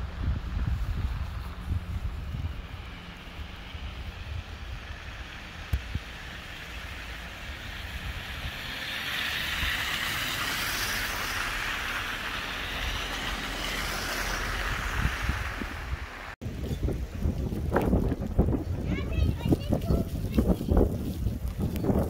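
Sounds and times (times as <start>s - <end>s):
tyres hissing through slush: 6.2s - 16.4s.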